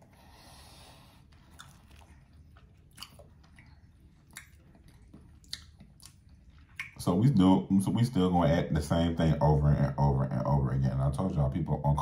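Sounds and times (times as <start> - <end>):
close-up chewing: 0.0 - 7.4
wet mouth clicks: 1.3 - 7.0.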